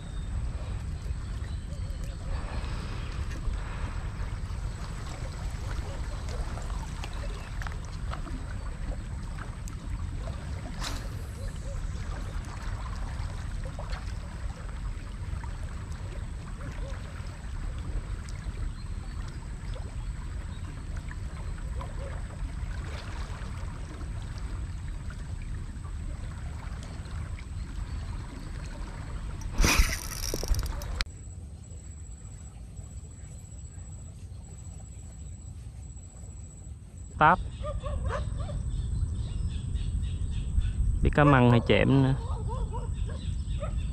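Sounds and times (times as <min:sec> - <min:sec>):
low wind rumble: 0:00.0 - 0:31.1, 0:36.4 - 0:43.9
faint water sounds: 0:00.0 - 0:43.9
fishing reel ticks and rustles: 0:29.4 - 0:31.0.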